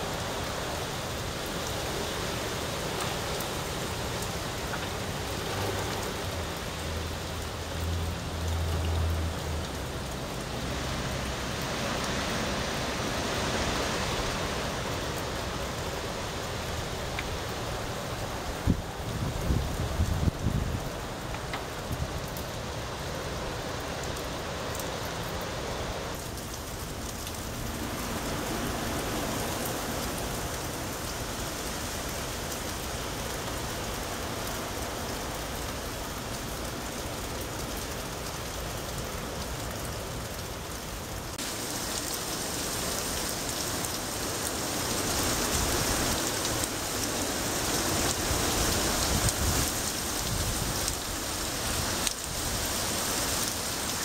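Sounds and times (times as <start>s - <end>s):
heavy rain pouring: 0.0s - 54.0s.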